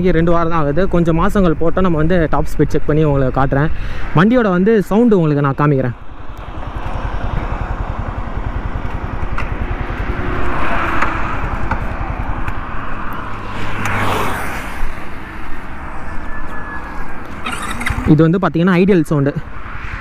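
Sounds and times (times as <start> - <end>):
motorcycle engine idling: 6.0 - 13.2
loud rushing swells: 6.0 - 18.2, 19.2 - 20.0.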